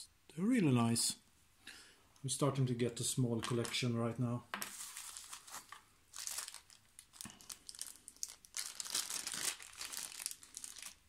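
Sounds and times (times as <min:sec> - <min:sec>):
plastic packaging crinkling: 0:03.4 - 0:03.9, 0:04.6 - 0:11.0.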